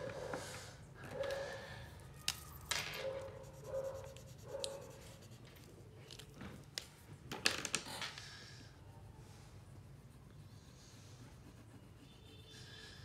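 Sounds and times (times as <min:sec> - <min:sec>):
crayon rubbing on paper: 0:03.4 - 0:05.5, 0:09.8 - 0:13.0
crayons clicking on table: 0:06.0 - 0:08.4.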